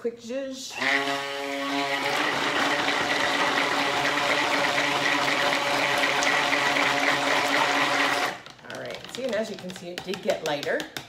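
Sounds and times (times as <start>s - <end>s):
stick blender motor humming: 0.7s - 8.6s.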